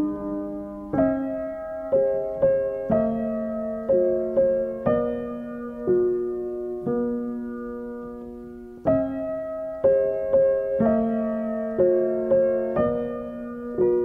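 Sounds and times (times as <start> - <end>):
slow gentle piano music: 0.0 - 14.0.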